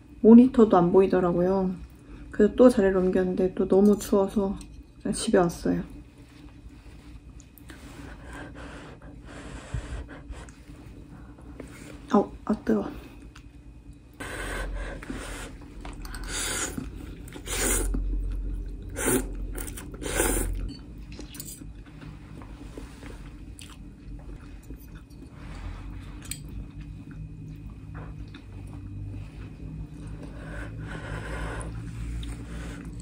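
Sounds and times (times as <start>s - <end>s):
person slurping noodles: 16.3s - 18.0s, 18.9s - 20.6s
person chewing: 23.6s - 25.3s, 26.1s - 28.5s.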